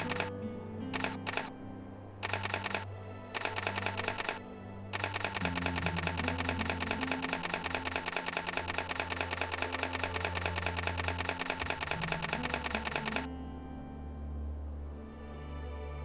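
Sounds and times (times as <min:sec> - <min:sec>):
camera shutter rapid burst: 0:00.0 - 0:00.3, 0:00.9 - 0:01.5, 0:02.2 - 0:02.8, 0:03.4 - 0:04.4, 0:05.0 - 0:13.3.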